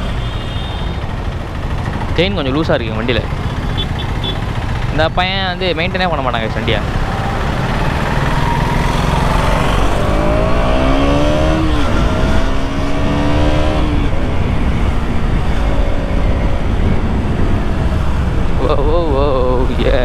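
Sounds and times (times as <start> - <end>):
motorcycle engine accelerating: 1.0 - 20.0.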